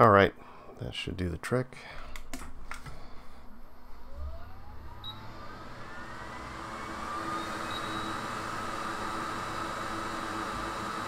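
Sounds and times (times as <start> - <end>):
hot air blower whine: 2.9 - 11.0.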